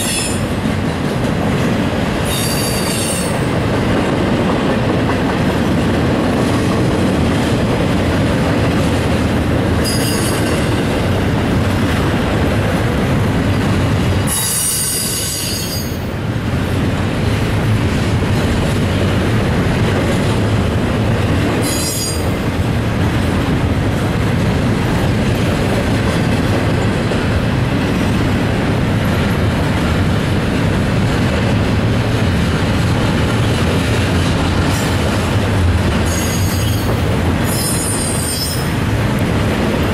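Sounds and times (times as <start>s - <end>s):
freight train wheels rumbling: 0.0s - 39.9s
high-pitched wheel squeal: 2.3s - 3.4s, 14.3s - 16.0s, 21.6s - 22.2s, 36.1s - 36.9s, 37.5s - 38.7s.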